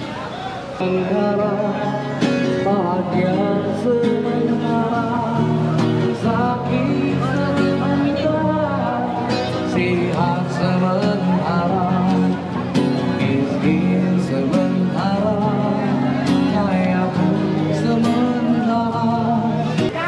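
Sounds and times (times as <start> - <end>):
acoustic guitar: 0.0 - 20.0
person singing: 0.8 - 12.4.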